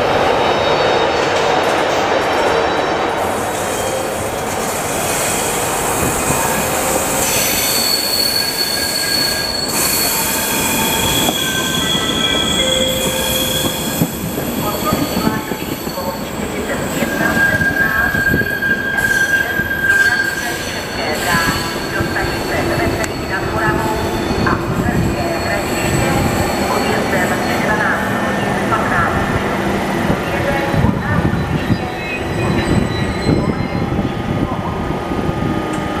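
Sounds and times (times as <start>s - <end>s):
train coaches rolling past: 0.0s - 36.0s
wheels squealing on track: 7.2s - 14.0s.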